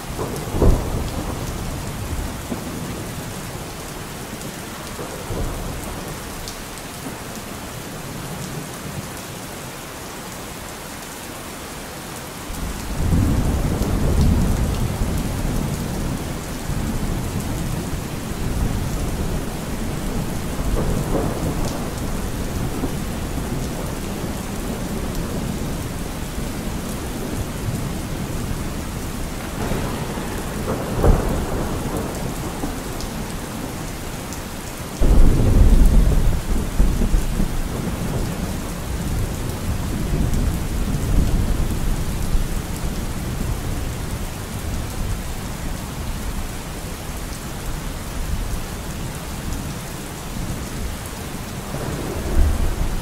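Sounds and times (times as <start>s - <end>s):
steady rain: 0.0s - 53.0s
thunder rumbling: 0.1s - 3.0s, 12.6s - 44.8s, 51.5s - 53.0s
loud thunderclap: 0.2s - 2.8s, 18.4s - 34.3s, 35.0s - 41.7s, 51.7s - 53.0s.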